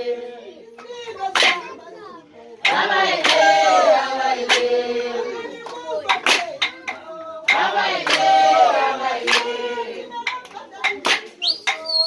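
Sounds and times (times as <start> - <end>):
group singing a chant: 0.0 - 11.9
sharp handclaps: 0.8 - 1.8, 2.6 - 3.8, 4.4 - 4.8, 5.6 - 12.0.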